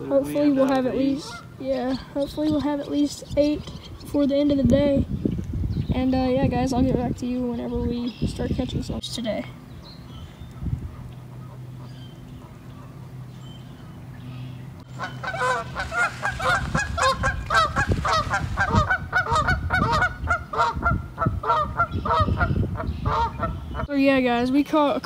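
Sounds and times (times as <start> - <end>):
low steady hum: 0.0 - 25.0
geese honking: 1.0 - 1.6, 13.9 - 23.9.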